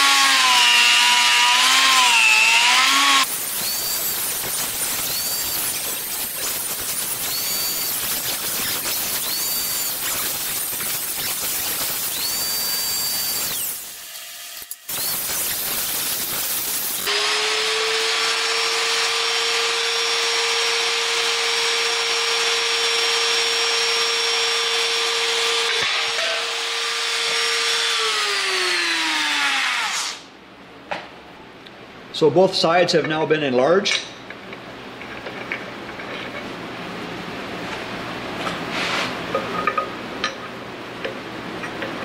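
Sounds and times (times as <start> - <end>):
die grinder grinding steel: 0.0 - 30.2.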